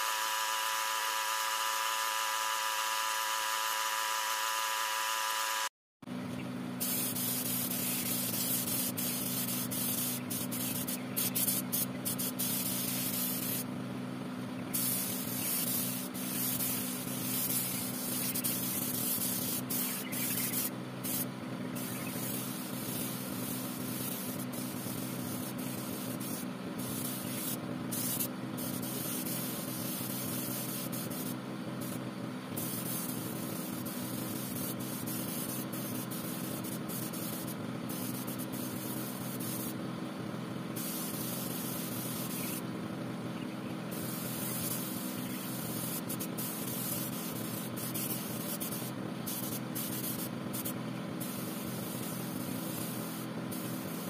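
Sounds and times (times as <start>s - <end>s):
steady machine hum: 0.0s - 54.0s
spray gun hissing: 6.8s - 13.7s, 14.7s - 32.0s, 32.6s - 39.8s, 40.7s - 42.6s, 43.9s - 54.0s.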